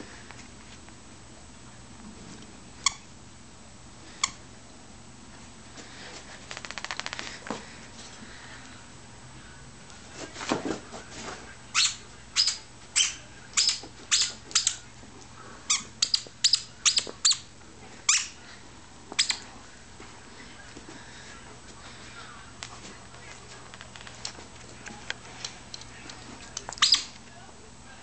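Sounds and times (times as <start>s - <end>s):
dog toy squeaking: 11.8s - 14.8s, 15.7s - 17.5s, 26.8s - 27.1s.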